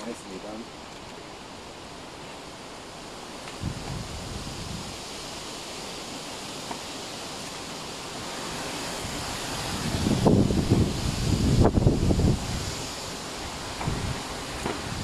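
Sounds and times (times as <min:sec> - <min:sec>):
wind blowing over microphone: 0:03.4 - 0:15.0.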